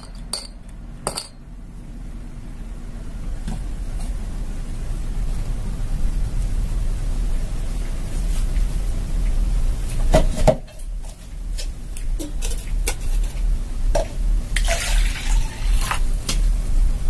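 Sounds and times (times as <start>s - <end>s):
dishes and utensils clinking: 0.0s - 1.4s
steady low hum: 0.0s - 17.0s.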